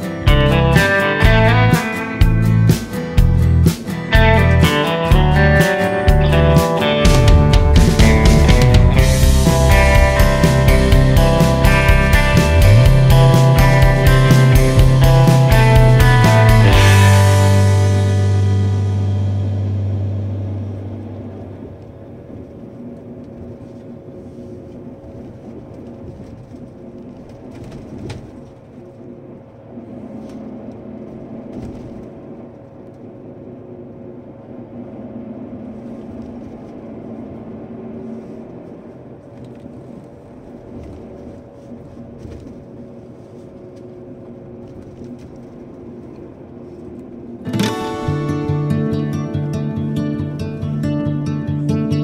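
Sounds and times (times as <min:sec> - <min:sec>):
vehicle engine rumble: 0:00.0 - 0:52.0
faint constant hum: 0:15.1 - 0:52.0.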